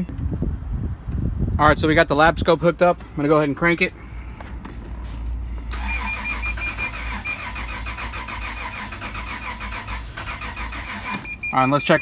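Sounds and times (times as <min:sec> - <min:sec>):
starter motor cranking engine: 0:05.7 - 0:11.4.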